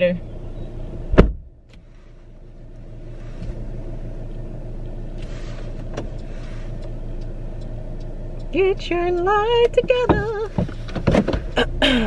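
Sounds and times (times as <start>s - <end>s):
car engine and road noise: 0.0s - 12.0s
faint clicks: 4.2s - 10.9s.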